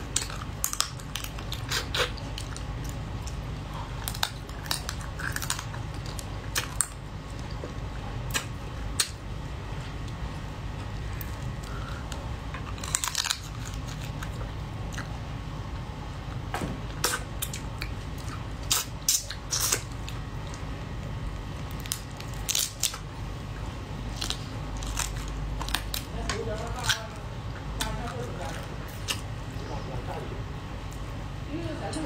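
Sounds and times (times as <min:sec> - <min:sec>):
crab shell cracking: 0:00.0 - 0:07.5, 0:11.2 - 0:15.1, 0:21.6 - 0:23.1, 0:24.1 - 0:29.3
steady low hum: 0:00.0 - 0:32.0.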